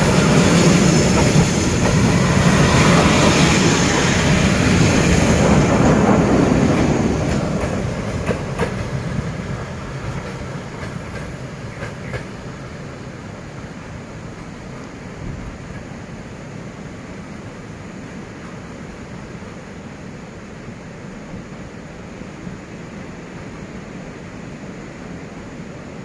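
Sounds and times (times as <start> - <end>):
train wheels clicking on rails: 0.0 - 16.4
freight train rumbling past: 0.0 - 26.0.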